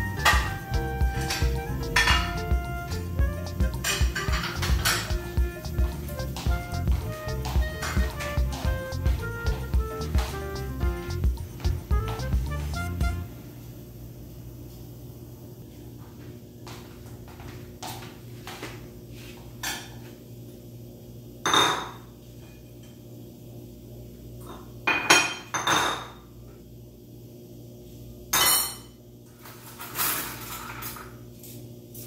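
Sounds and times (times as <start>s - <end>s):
dishes and cutlery clinking: 0.0s - 9.2s, 24.5s - 26.2s, 28.4s - 32.0s.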